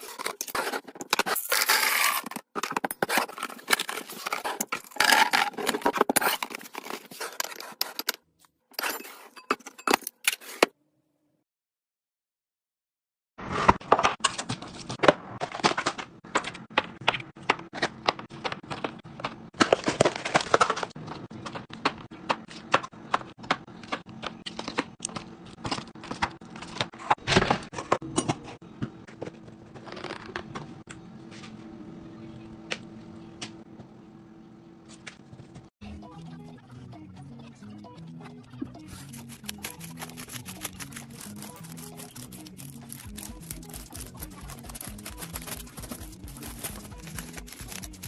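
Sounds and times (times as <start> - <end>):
plastic packaging clicks and rustles: 0.0 - 8.0, 39.0 - 48.0.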